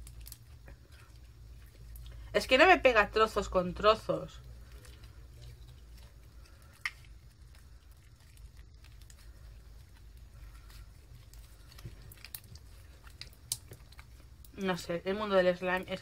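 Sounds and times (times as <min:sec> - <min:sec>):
slime squishing and clicking: 0:00.0 - 0:01.3, 0:04.7 - 0:14.7
low steady hum: 0:00.0 - 0:16.0.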